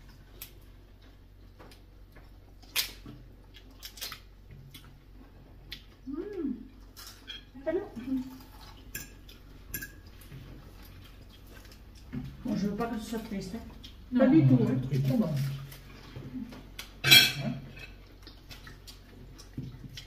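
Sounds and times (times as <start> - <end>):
cutlery clinking on plates: 17.0 - 18.0.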